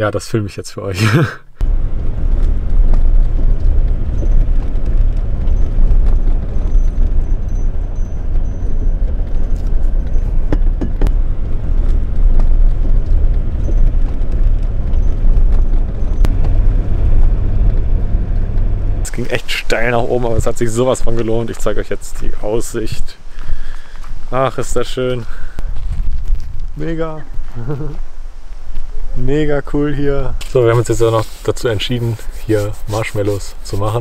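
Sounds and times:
sharp knocks from rough track: 0:01.6 - 0:19.3
engine and tyre rumble: 0:01.6 - 0:34.0.

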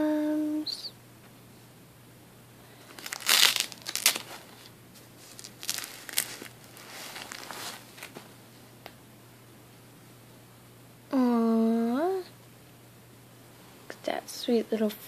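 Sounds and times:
tissue paper crinkling: 0:02.9 - 0:08.2.

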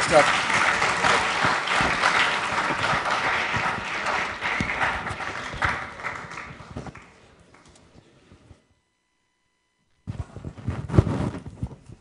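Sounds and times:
audience clapping: 0:00.0 - 0:07.8.

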